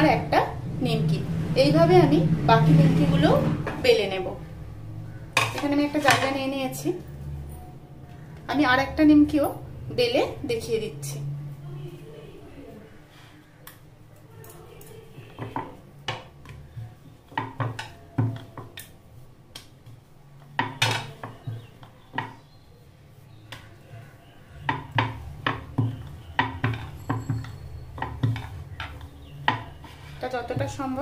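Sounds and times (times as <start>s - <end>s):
wood-on-wood knocks: 24.6s - 29.8s.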